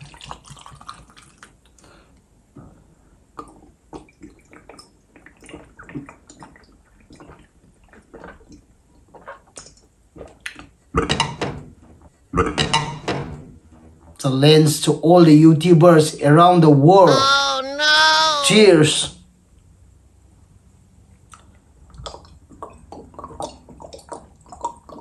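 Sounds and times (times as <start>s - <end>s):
liquid poured into a glass: 0.0s - 1.6s
person gulping: 2.6s - 11.3s, 12.4s - 12.6s, 21.3s - 25.0s.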